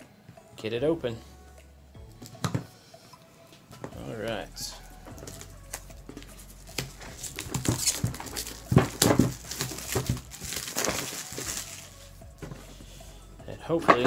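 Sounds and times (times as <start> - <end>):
plastic shrink wrap crinkling: 5.1 - 12.2.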